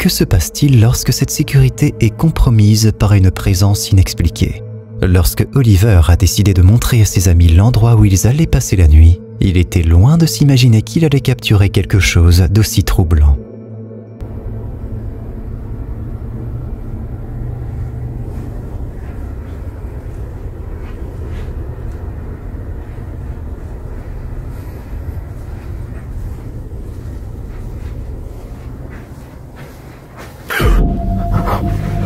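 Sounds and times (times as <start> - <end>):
low rumbling noise: 13.2 - 32.0.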